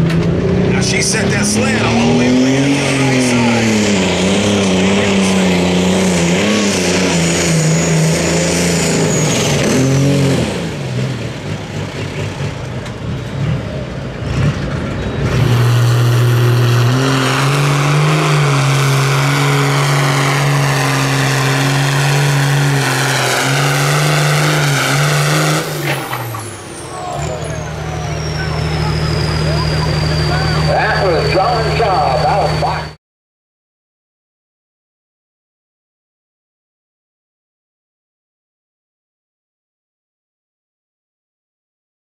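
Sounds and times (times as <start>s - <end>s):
tractor engine revving under load: 0.2s - 32.9s.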